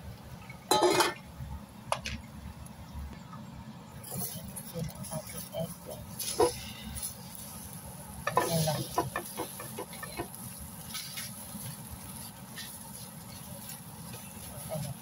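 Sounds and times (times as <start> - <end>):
egg sizzling in a frying pan: 4.1 - 15.0
spatula scraping a pan: 6.1 - 7.6, 8.2 - 15.0.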